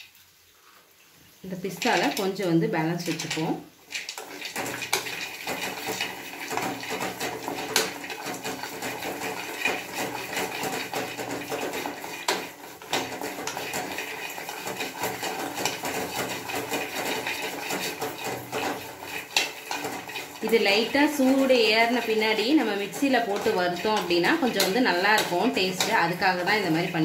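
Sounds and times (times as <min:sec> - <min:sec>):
nuts clattering in metal pan: 0:01.6 - 0:27.0.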